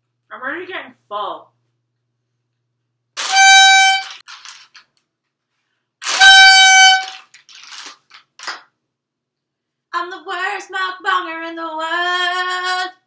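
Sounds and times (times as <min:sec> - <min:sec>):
party horn blasts: 0:03.2 - 0:04.6, 0:06.0 - 0:07.8.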